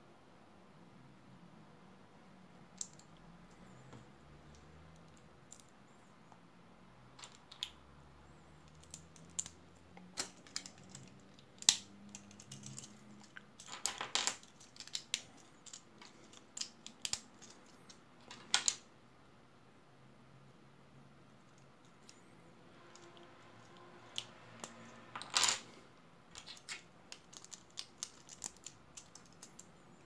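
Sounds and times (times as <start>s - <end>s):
plastic bricks clicking together: 8.6s - 18.8s, 26.4s - 29.7s.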